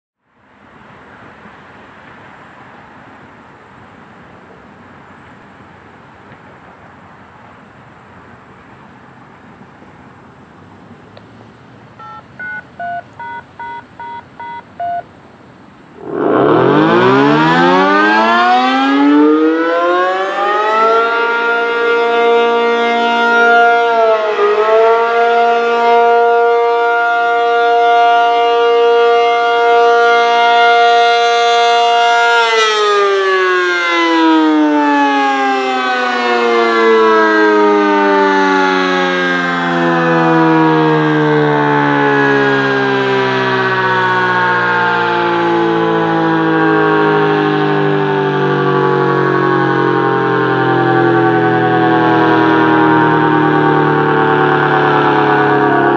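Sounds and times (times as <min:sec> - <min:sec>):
tone beeps: 0:12.0 - 0:15.1
tornado siren winding: 0:16.0 - 0:18.0.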